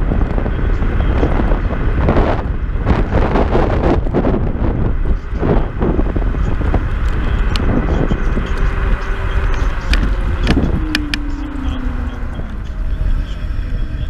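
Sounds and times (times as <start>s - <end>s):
wind rumbling on microphone: 0.0s - 14.0s
electric motor whine: 4.8s - 14.0s
sharp rattles and clicks: 6.2s - 11.4s.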